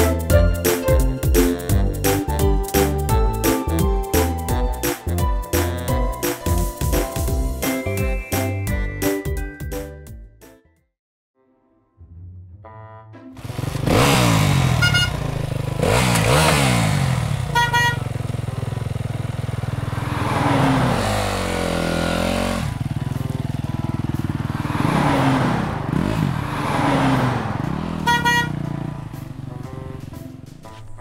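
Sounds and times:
car engines revving and zooming past: 13.8s - 14.9s, 19.8s - 22.8s, 24.4s - 28.2s
car horn honking: 14.4s - 15.4s, 17.3s - 18.2s, 27.9s - 28.9s.

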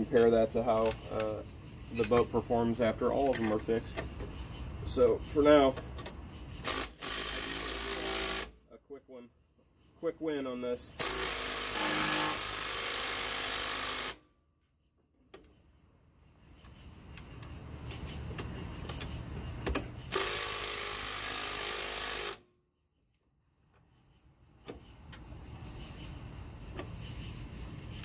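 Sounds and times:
impact driver hammering on bolts: 11.0s - 14.2s, 19.6s - 22.4s.

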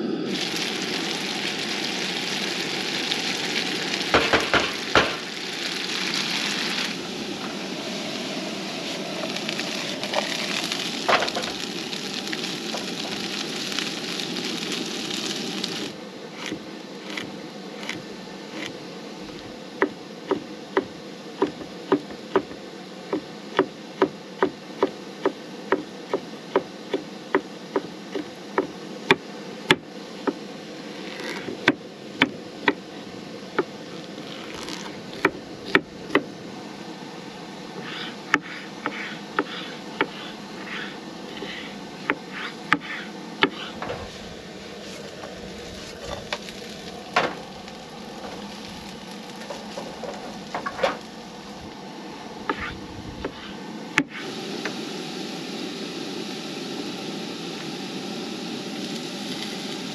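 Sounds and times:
food sizzling in frying pan: 0.0s - 17.2s, 33.6s - 59.9s
knife chopping on wooden board: 42.1s - 43.7s.

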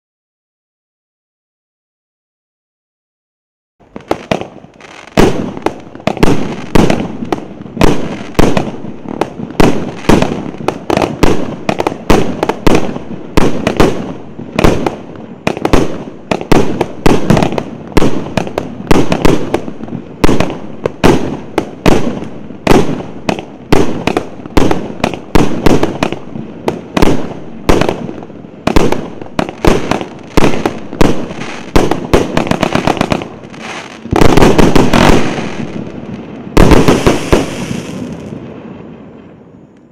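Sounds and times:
firework crackling: 3.8s - 39.9s
firework bangs: 3.9s - 39.9s.

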